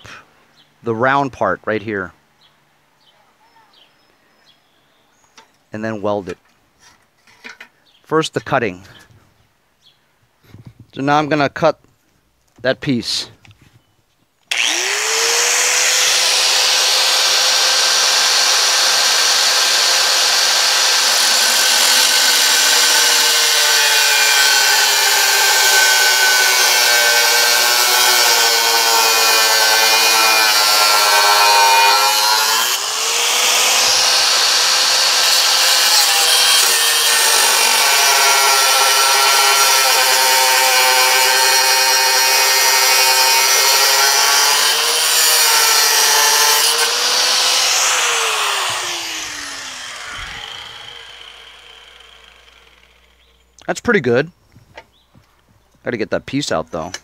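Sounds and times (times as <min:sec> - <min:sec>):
angle grinder cutting steel: 0:14.5 - 0:53.3.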